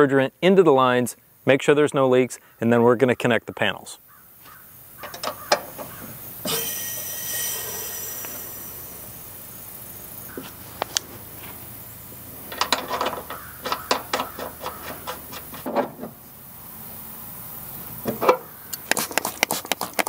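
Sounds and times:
wrench clicking on metal fittings: 0:12.5 - 0:15.4.

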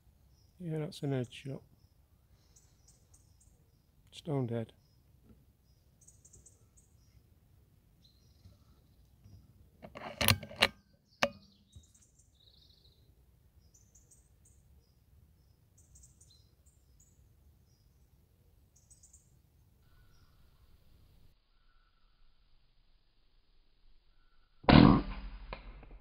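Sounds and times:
faint high bird chirps: 0:01.2 - 0:07.3, 0:08.0 - 0:09.6, 0:10.8 - 0:22.5, 0:24.0 - 0:24.6
sharp clicks and knocks: 0:09.8 - 0:11.4.

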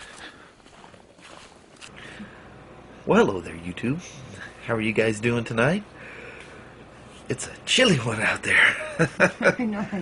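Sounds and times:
footsteps crunching on snow: 0:00.0 - 0:01.9.

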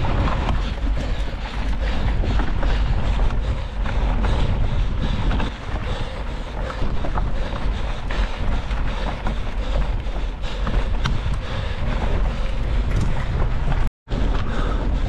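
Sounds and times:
bike tyres crunching on gravel: 0:00.0 - 0:03.2
stones and bike rattling: 0:00.0 - 0:15.0
wind rumble on microphone: 0:00.0 - 0:15.0.

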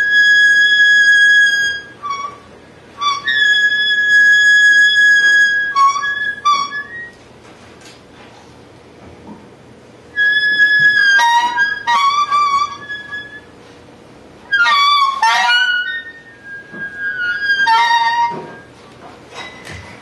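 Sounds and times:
high wind instrument tone: 0:00.0 - 0:07.2, 0:10.1 - 0:13.7, 0:14.4 - 0:18.8.

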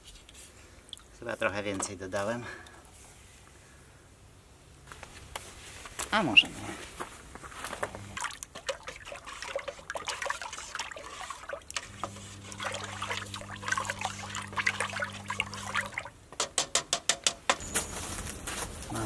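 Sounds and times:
paint stirred in a can: 0:07.9 - 0:16.1
steady low hum: 0:09.1 - 0:16.3.

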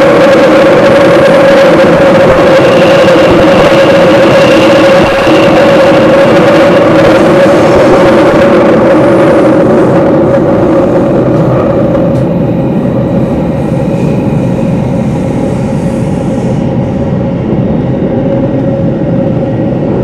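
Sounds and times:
constant hum: 0:00.0 - 0:20.0
train rumbling through tunnel: 0:00.0 - 0:20.0.

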